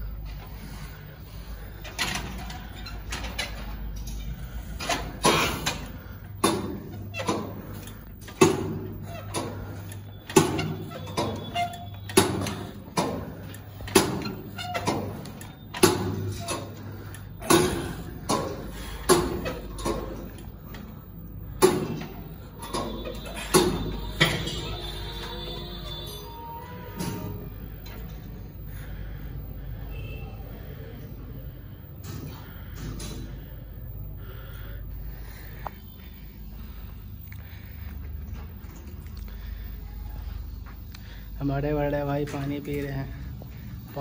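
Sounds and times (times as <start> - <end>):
steady low hum: 0.0 - 44.0
weight machine clanking: 1.8 - 26.3.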